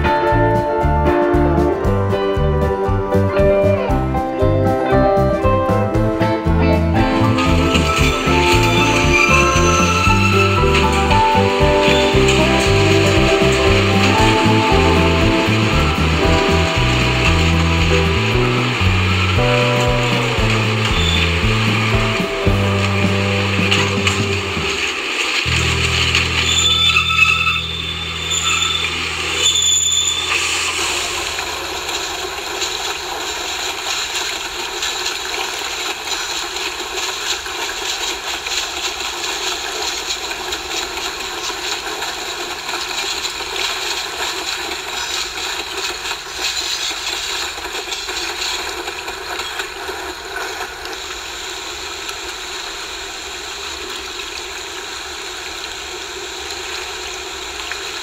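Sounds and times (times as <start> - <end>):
low hum: 0.0 - 33.4
model trains whirring: 6.0 - 58.0.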